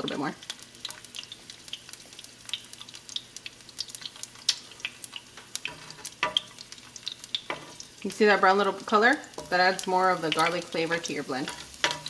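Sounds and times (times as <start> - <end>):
garlic sizzling in hot oil: 0.0 - 12.0
metal tongs clacking on pan: 3.9 - 7.8, 8.7 - 10.7, 11.4 - 12.0.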